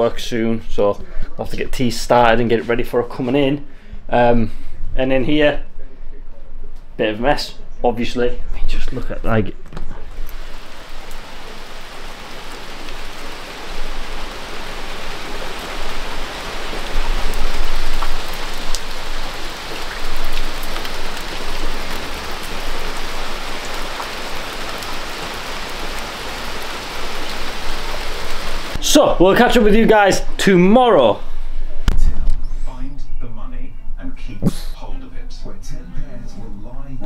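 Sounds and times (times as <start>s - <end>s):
rain on paving: 10.1s - 28.8s.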